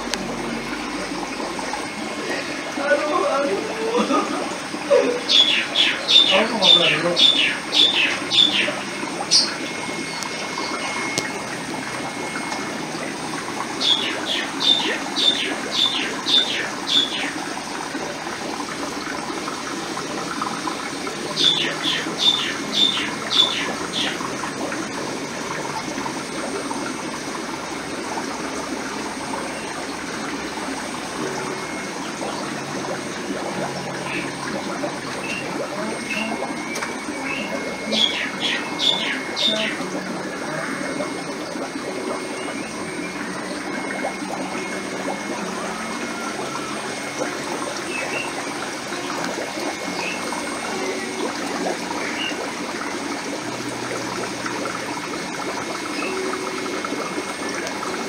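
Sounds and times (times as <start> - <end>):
water bubbling and gurgling: 0.0 - 58.0
bird calling sharp high notes: 5.3 - 11.4, 35.2 - 39.8.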